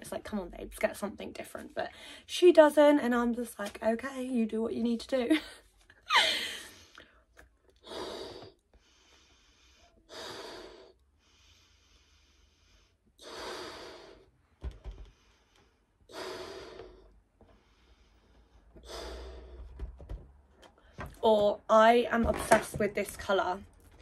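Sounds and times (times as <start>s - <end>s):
person blowing up balloon: 16.1s - 17.2s, 18.7s - 19.8s.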